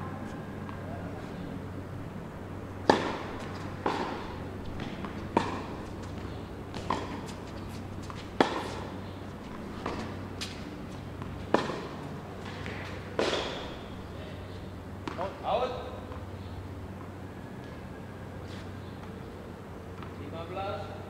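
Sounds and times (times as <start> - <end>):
tennis racket striking ball: 2.8 - 6.0, 6.7 - 8.9, 9.8 - 13.8.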